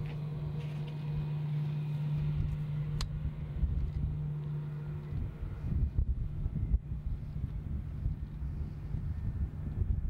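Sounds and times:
jet engine rumble: 0:00.0 - 0:10.0
gusty wind on microphone: 0:02.2 - 0:04.3, 0:04.9 - 0:10.0.

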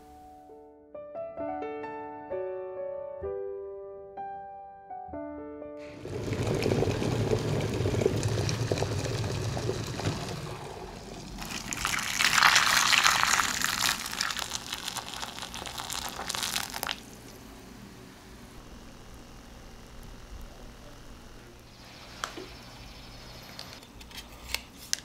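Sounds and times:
piano notes: 0:00.0 - 0:09.0
water pouring into a glass bowl: 0:05.8 - 0:17.2.

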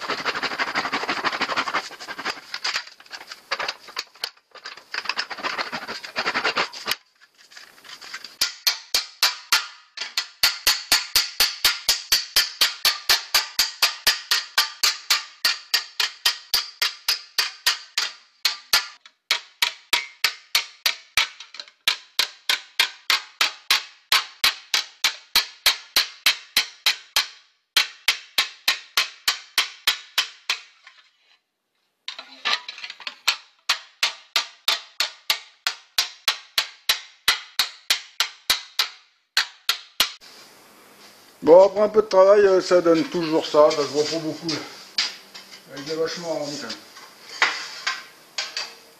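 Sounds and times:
hammer on sheet metal ringing: 0:08.4 - 0:30.6.

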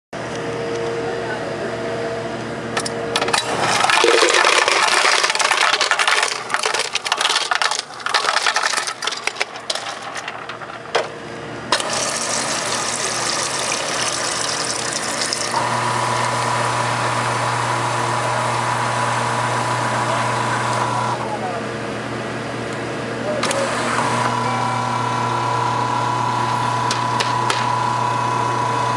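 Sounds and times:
ice cubes clattering into plastic cup: 0:03.6 - 0:10.7, 0:11.8 - 0:15.6
soda pouring into cup: 0:03.7 - 0:07.4, 0:11.8 - 0:16.6.

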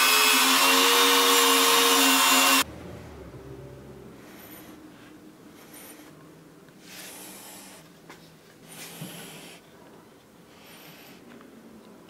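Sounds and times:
faint breathing: 0:04.0 - 0:08.0, 0:10.4 - 0:11.5.

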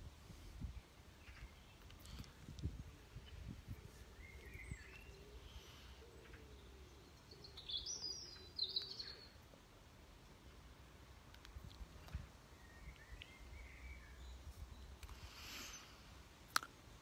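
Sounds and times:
birds chirping: 0:00.8 - 0:09.6, 0:12.4 - 0:16.0.

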